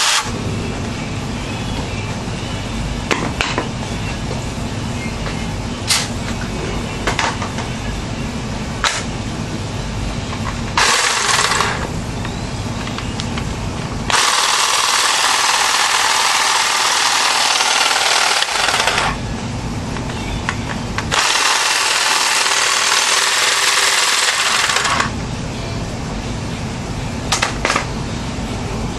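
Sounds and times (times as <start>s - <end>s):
hedge trimmer blades buzzing: 0.0s - 0.4s, 10.8s - 11.9s, 14.1s - 19.2s, 21.1s - 25.1s
steady low hum: 0.0s - 28.9s.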